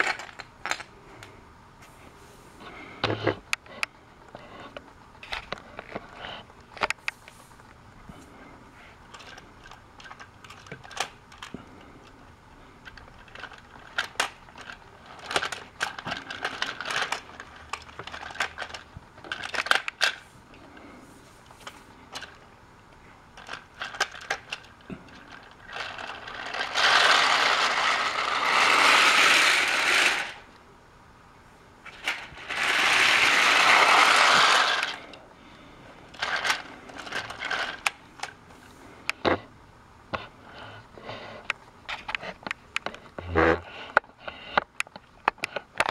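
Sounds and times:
toy train clicks and rattles: 0.0 - 0.9, 9.0 - 20.3, 21.6 - 22.5, 23.3 - 30.5, 31.9 - 35.2, 36.1 - 38.4, 44.3 - 45.9.

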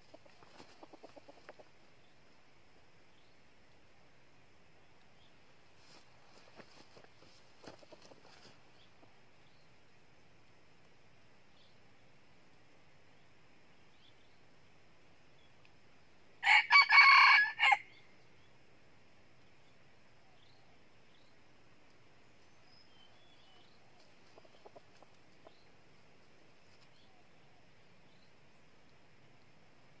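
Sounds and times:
rooster crowing: 16.4 - 17.9.

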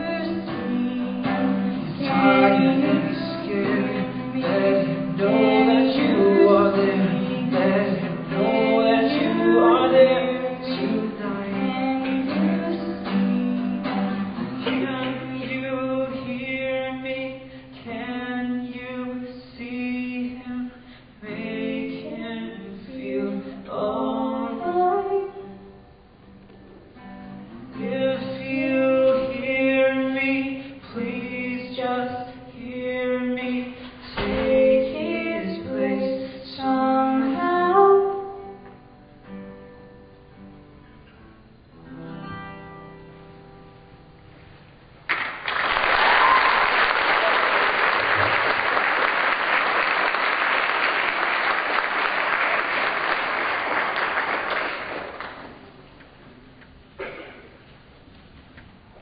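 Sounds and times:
person singing: 0.0 - 25.7, 27.8 - 38.6
acoustic guitar: 0.0 - 59.0.

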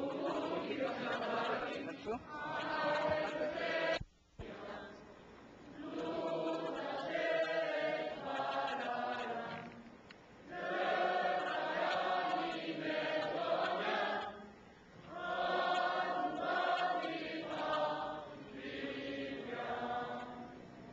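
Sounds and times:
choir singing: 0.0 - 5.1, 5.7 - 9.8, 10.4 - 20.9.

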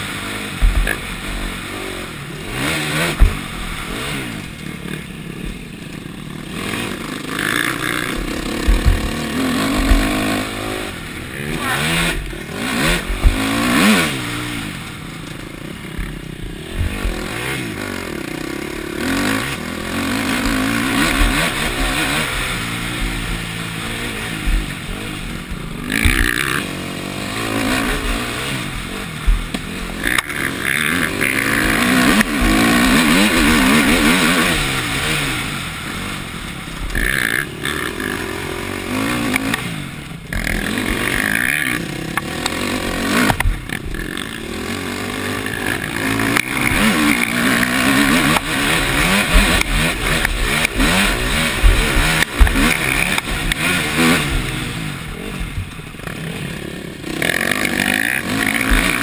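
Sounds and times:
motocross bike engine revving: 0.0 - 59.0
clattering knocks over bumps: 0.6 - 1.7, 3.0 - 3.8, 7.4 - 10.6, 24.2 - 26.6.

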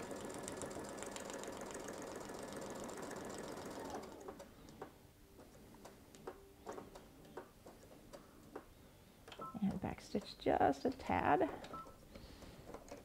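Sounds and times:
sewing machine stitching: 0.0 - 4.5.

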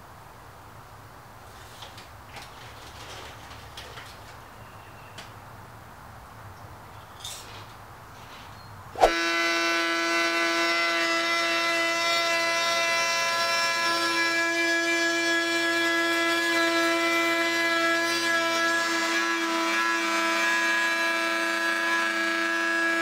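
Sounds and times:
trim router high whine: 9.0 - 23.0.

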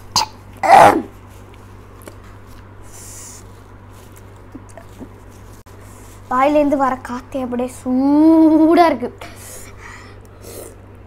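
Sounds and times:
hissing breath: 9.3 - 10.8.

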